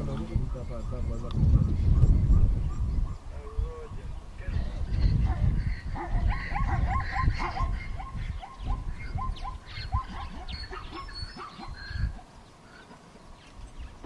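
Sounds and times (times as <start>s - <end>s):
animal chirping calls: 4.9s - 13.0s.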